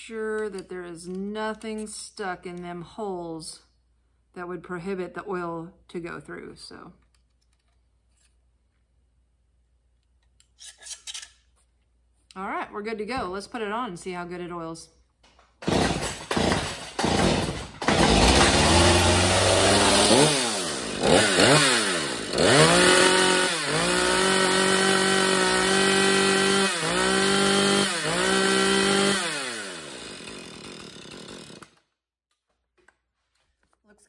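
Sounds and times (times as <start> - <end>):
chainsaw revving: 15.6 - 31.8.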